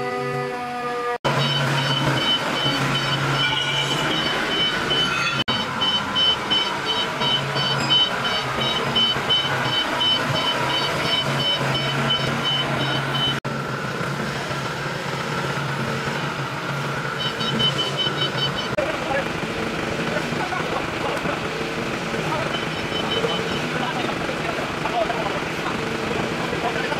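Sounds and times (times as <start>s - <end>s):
forklift engine hum: 1.2s - 26.9s
high-pitched warning alarm beeps: 1.3s - 13.4s, 17.2s - 18.8s, 22.4s - 23.8s.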